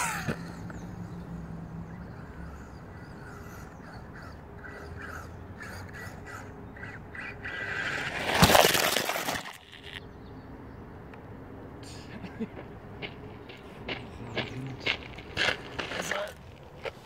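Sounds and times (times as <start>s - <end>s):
bird calling: 0.0s - 8.2s
rc car rushing past on gravel: 7.2s - 10.0s.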